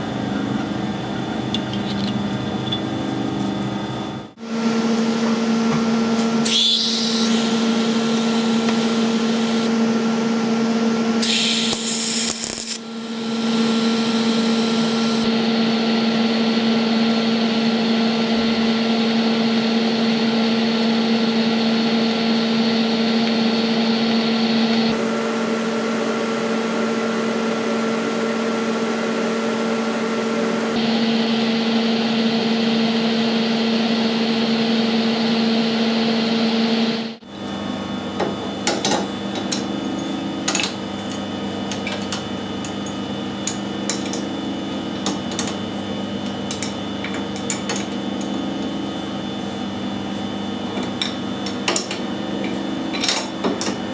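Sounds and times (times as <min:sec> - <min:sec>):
welding arc buzzing and hissing: 0:06.4 - 0:09.7, 0:11.2 - 0:15.4.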